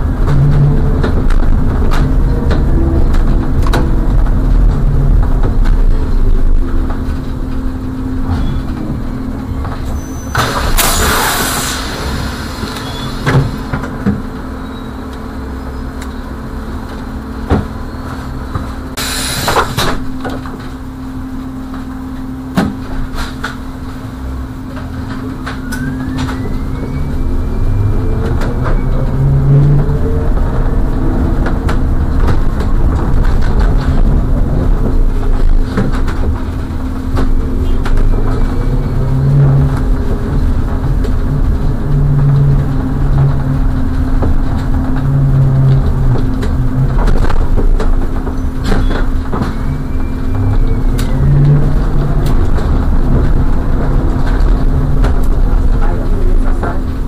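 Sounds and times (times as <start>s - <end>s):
bus engine hum: 0.0s - 57.0s
rising engine whine: 0.0s - 57.0s
road rumble: 0.0s - 57.0s
air brake hisses: 10.0s - 13.7s, 19.0s - 19.9s.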